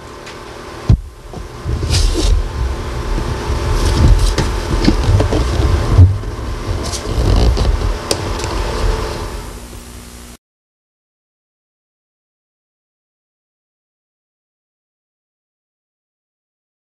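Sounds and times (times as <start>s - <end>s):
knocks and thumps: 0.9s - 9.0s
camcorder handling rumble: 0.9s - 9.9s.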